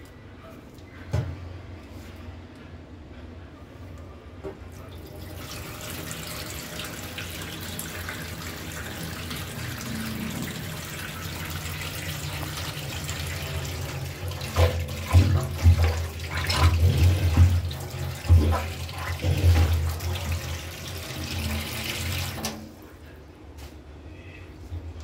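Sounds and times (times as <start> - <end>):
tap water pouring into sink: 4.9 - 22.7
plunger sloshing in water: 14.4 - 20.4.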